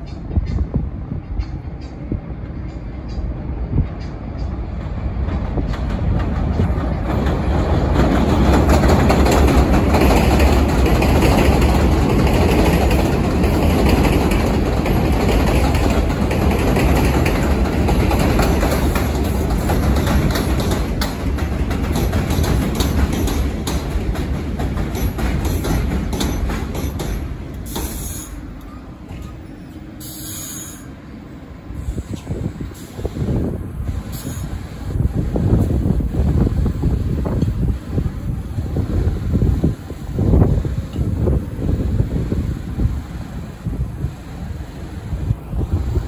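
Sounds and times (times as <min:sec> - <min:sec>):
subway train rumble: 0:00.0 - 0:46.0
wheel clicks over rail joints: 0:05.6 - 0:28.0.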